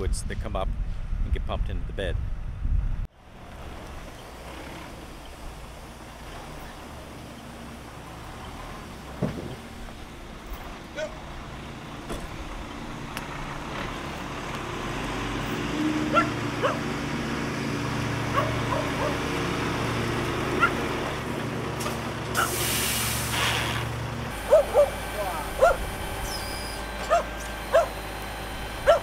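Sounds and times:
truck diesel engine running: 3.2 - 29.0
dog barking: 16.1 - 16.8, 18.3 - 19.2, 20.6 - 20.8, 24.4 - 25.0, 25.6 - 25.8, 27.0 - 28.0
air brakes hissing: 22.3 - 27.2.

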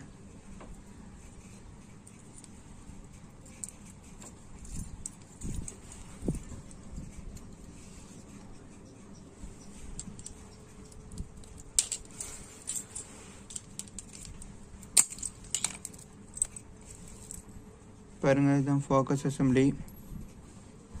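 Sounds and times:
screwdriver scraping metal parts: 1.9 - 17.4.

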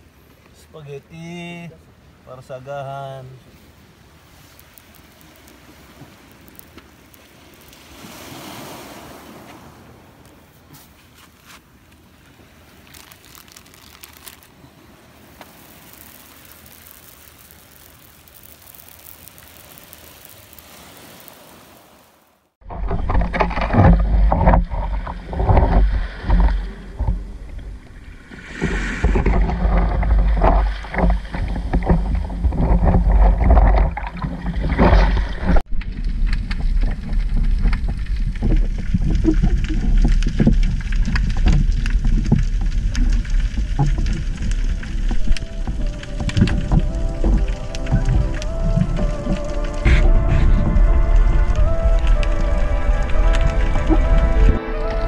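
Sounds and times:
faint background hiss: 0.0 - 22.6
sea waves washing over pebbly shore: 3.1 - 55.0
wind buffeting microphone: 22.6 - 55.0.

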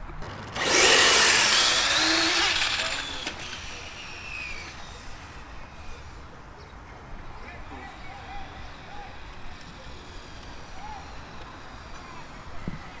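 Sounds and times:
remote-control car motor whine: 0.3 - 6.3.

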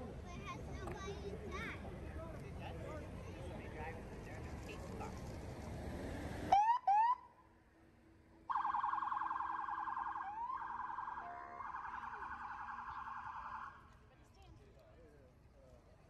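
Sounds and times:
emergency siren whoops: 8.5 - 13.8
warbling siren: 8.5 - 13.8.

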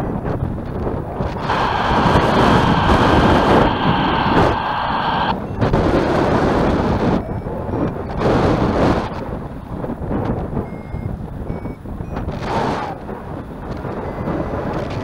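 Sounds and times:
wind buffeting microphone: 0.0 - 15.0
steady high tone: 1.3 - 5.3.

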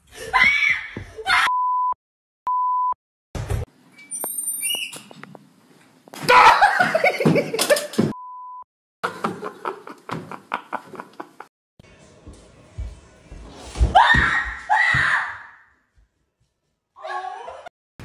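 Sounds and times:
censor bleeps: 1.5 - 3.0, 8.2 - 8.6.

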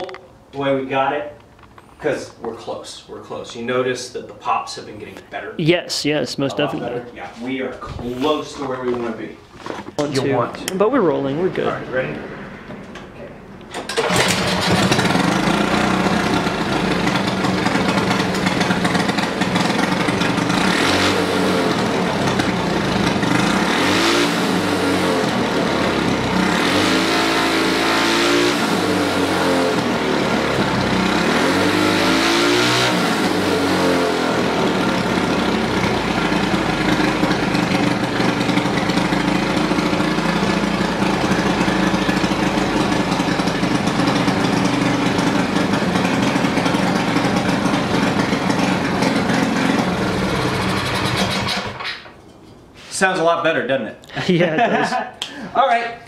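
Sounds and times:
small engine revving: 13.7 - 51.9.

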